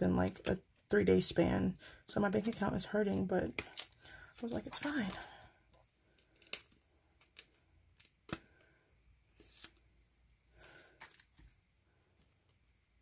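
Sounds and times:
plastic sleeve rustling and crinkling: 3.5s - 5.4s.

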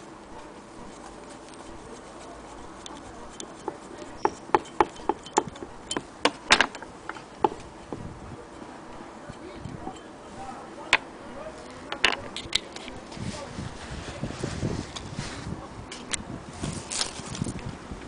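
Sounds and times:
screwdriver clicking on screw: 2.5s - 7.7s.

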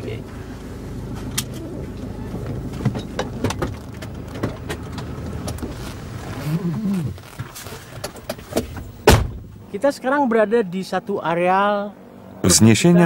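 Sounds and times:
car low steady hum: 0.0s - 13.0s
car door and seat clicks: 2.8s - 9.6s.

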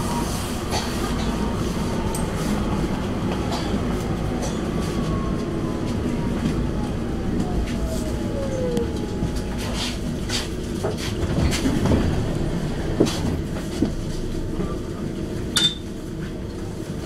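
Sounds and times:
tram clunks: 0.0s - 17.0s
tram motor whine: 0.0s - 17.0s
tram running hum: 0.0s - 17.0s
low rumble: 1.3s - 14.9s.

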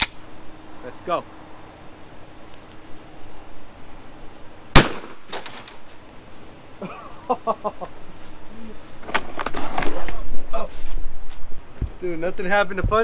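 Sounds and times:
shotgun shot: 4.7s - 5.6s.

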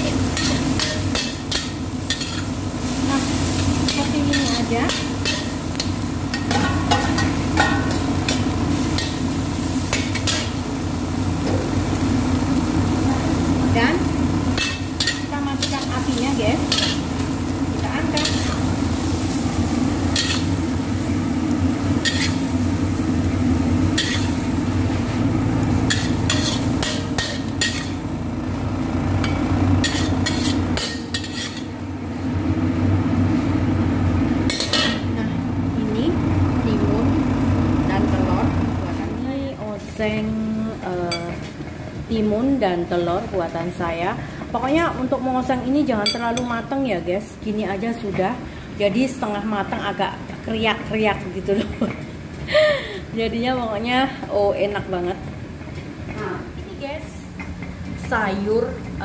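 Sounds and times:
food sizzling in wok: 0.0s - 59.0s
steady low hum: 0.0s - 59.0s
metal spatula scraping wok: 0.1s - 10.6s, 18.0s - 19.4s, 20.1s - 20.6s, 22.0s - 22.5s, 23.9s - 25.1s, 25.8s - 28.0s, 29.2s - 31.7s.

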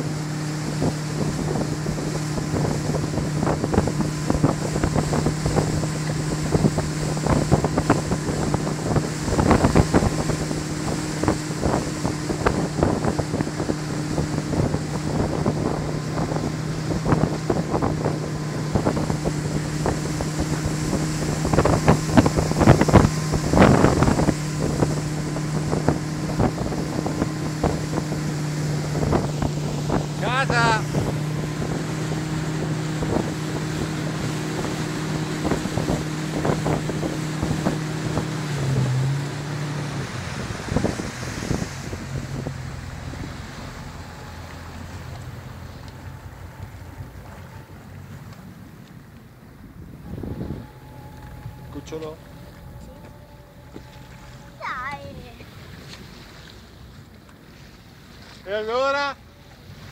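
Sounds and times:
wind buffeting microphone: 0.0s - 57.5s
boat engine droning: 0.0s - 59.9s
rush of wake and spray: 0.0s - 59.9s.

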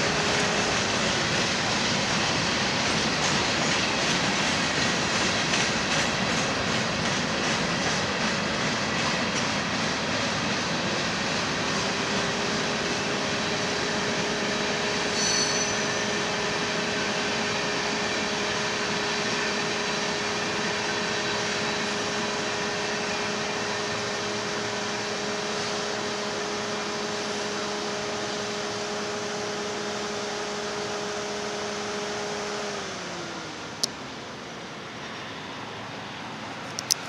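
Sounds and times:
train wheels rolling on rail: 0.0s - 37.0s.

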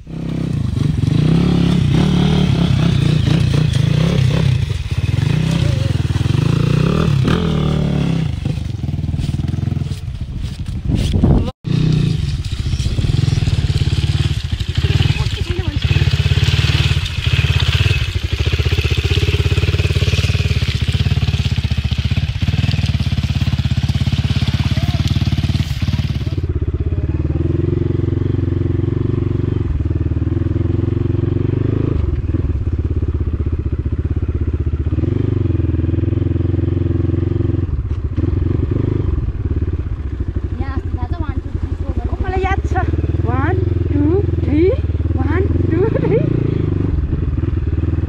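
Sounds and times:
dirt bike engine running: 0.0s - 48.0s.

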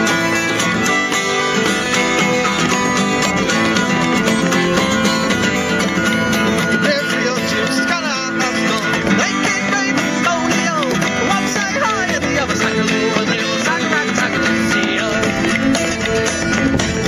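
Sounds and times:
strummed acoustic guitar: 0.0s - 17.0s.

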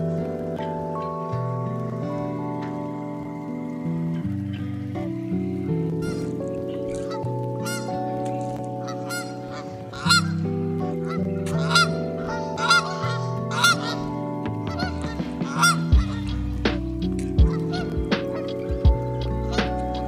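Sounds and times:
geese honking: 5.9s - 20.0s.

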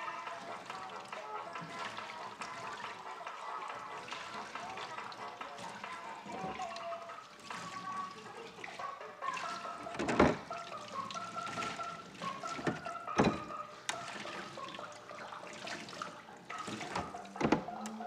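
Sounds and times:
dishware clattering: 12.6s - 13.5s.

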